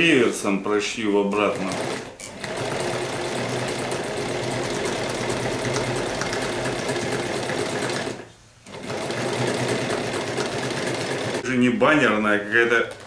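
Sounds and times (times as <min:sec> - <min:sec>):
sewing machine stitching: 0:01.4 - 0:11.4.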